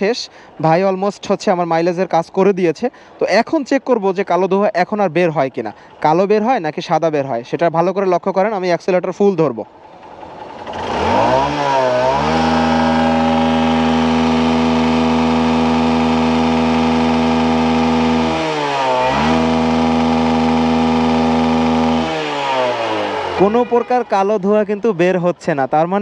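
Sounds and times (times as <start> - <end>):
motorcycle engine revving: 9.8 - 24.8.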